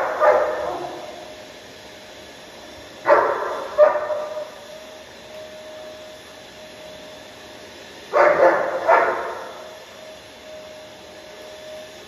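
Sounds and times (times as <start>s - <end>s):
dog barking: 0.0s - 1.2s, 3.1s - 4.6s, 8.1s - 9.7s
vacuum cleaner humming: 0.0s - 12.0s.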